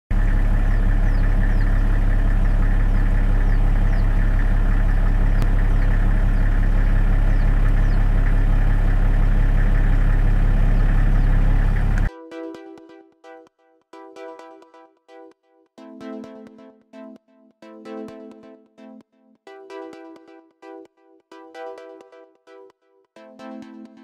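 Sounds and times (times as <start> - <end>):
low mechanical drone: 0.1 - 12.1.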